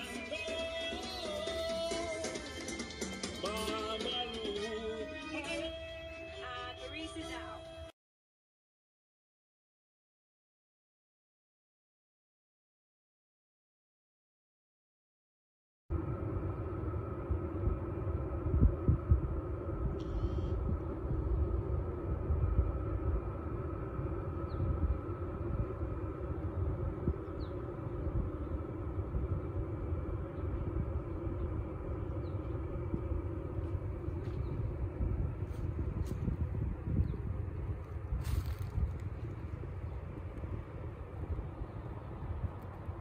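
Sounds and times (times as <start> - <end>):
steady low rumble: 15.9 - 43.0
faint bird chirps: 20.0 - 20.6.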